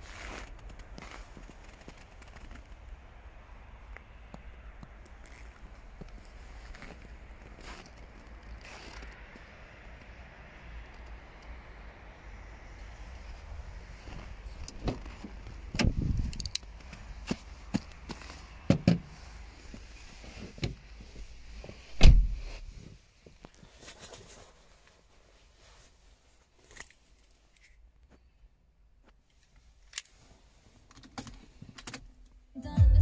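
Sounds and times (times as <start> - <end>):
car door opening: 14.7 - 16.4, 21.9 - 22.5
car door shutting with thump: 22.0 - 22.5.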